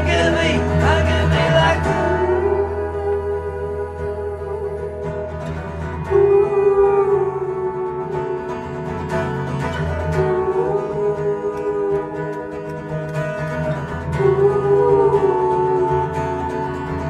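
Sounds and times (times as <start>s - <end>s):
pedal steel guitar sliding notes: 0.0s - 17.0s
strummed acoustic guitar: 0.0s - 17.0s.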